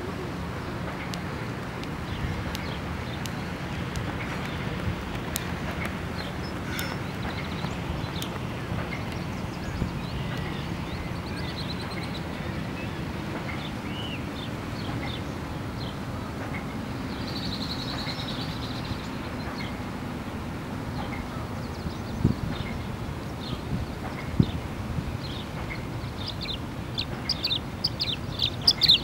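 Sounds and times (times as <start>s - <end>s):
bird chirping and twittering: 5.4s - 19.8s, 25.2s - 29.0s.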